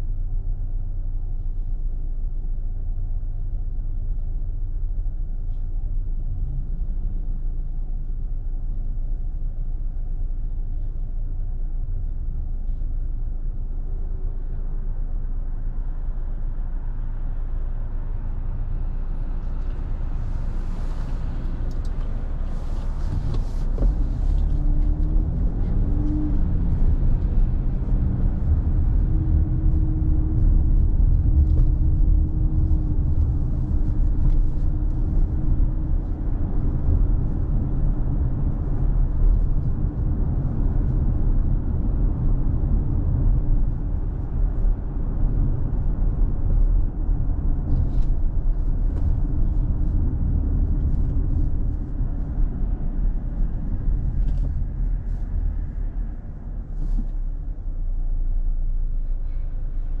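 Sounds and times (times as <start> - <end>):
car engine and tyres rumbling: 0.0 - 60.0.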